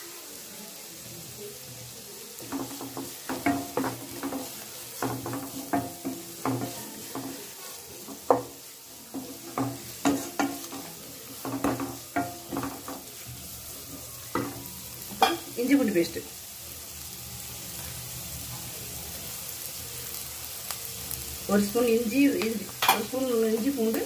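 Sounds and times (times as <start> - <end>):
oil frying hiss: 0.0 - 24.0
spatula scraping a pan: 2.4 - 14.6.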